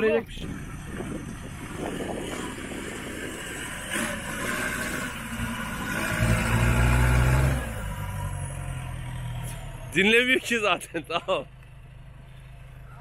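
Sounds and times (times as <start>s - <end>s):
truck engine running: 0.0s - 13.0s
truck driving through water: 1.7s - 8.5s.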